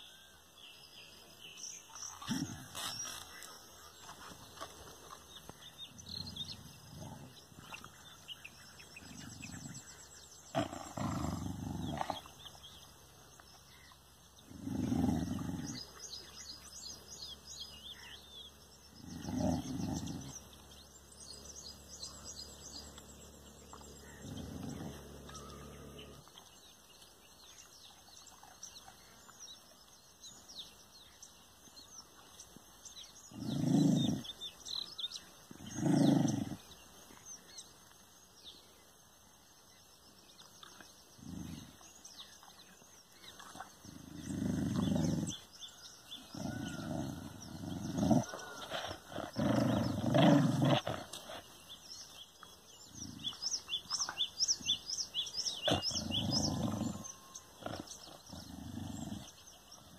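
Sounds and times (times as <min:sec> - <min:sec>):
birds chirping: 0:00.0 - 0:59.9
dog growling: 0:02.0 - 0:03.5, 0:04.1 - 0:12.6, 0:14.4 - 0:16.2, 0:18.9 - 0:20.6, 0:23.8 - 0:26.4, 0:33.2 - 0:36.8, 0:41.2 - 0:41.9, 0:43.4 - 0:52.2, 0:52.8 - 0:59.9.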